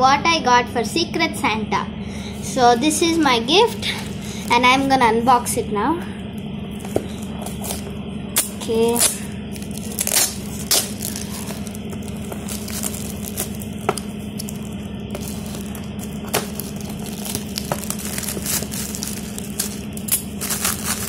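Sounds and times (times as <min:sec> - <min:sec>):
steady low hum: 0:00.0 - 0:21.0
gift wrap crinkling: 0:06.7 - 0:21.0.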